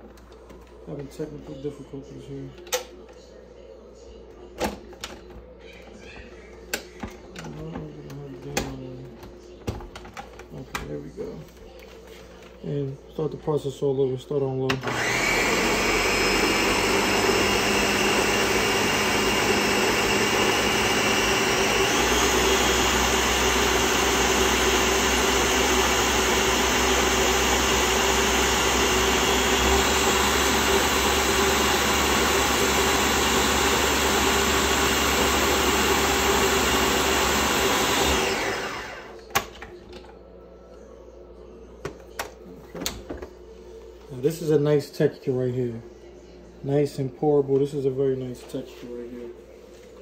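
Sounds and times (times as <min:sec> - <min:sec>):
blender running: 0:14.7 - 0:39.3.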